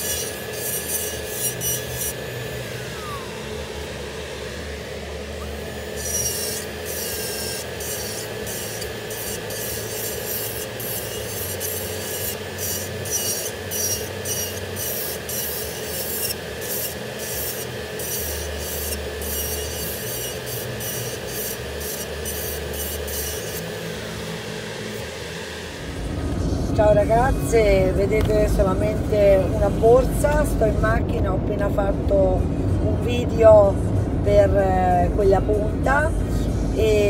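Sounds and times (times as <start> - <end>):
drill bit grinding nail: 0.0 - 3.3, 5.4 - 25.1
electric nail drill whining: 0.0 - 30.9.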